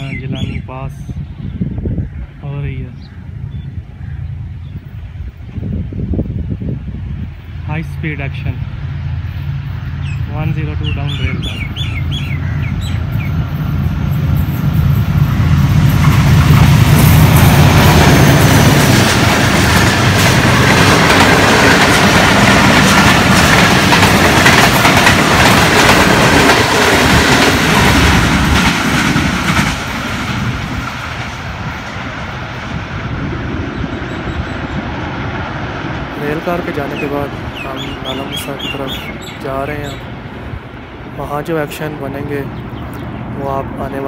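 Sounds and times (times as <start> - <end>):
locomotive engine drone: 1.1 - 44.0
wheels clattering over rail joints: 15.8 - 32.0.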